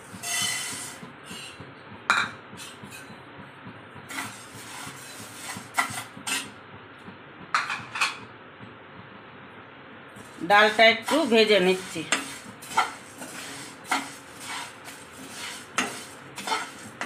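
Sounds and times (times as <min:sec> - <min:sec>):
spatula scraping frying pan: 0:00.1 - 0:01.6, 0:04.1 - 0:06.6, 0:10.2 - 0:17.0.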